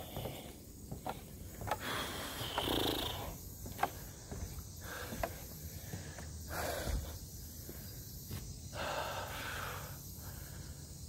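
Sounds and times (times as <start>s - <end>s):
footsteps on dirt trail: 0.0s - 2.6s, 3.5s - 8.6s
heavy breathing: 0.0s - 11.0s.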